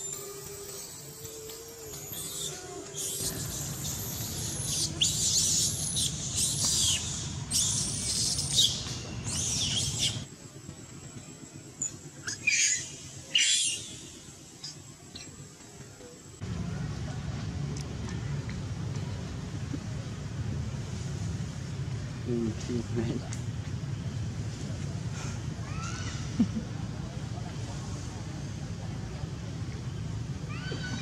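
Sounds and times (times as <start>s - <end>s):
baby monkey screaming: 1.2s - 10.2s, 12.2s - 14.0s, 25.6s - 26.4s, 30.5s - 31.0s.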